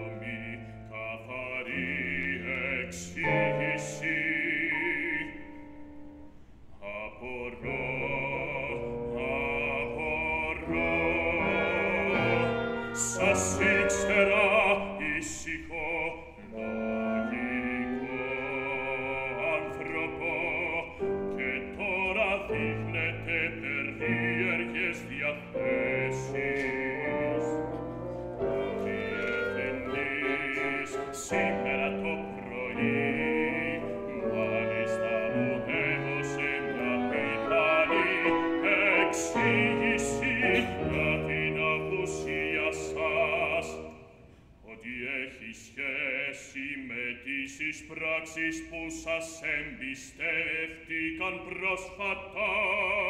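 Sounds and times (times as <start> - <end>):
operatic singing: 0.0 - 5.7, 6.8 - 53.0
piano: 0.0 - 53.0
bassoon: 7.6 - 15.2, 16.3 - 43.9
clarinet: 8.1 - 15.0, 16.4 - 21.6, 23.5 - 43.9
oboe: 25.7 - 41.6.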